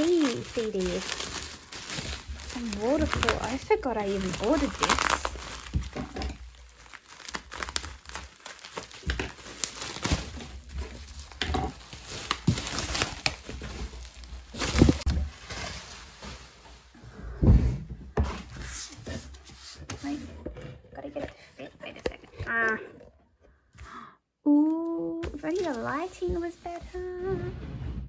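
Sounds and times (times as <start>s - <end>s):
bubble wrap crinkling: 0.0s - 17.0s, 25.3s - 27.3s.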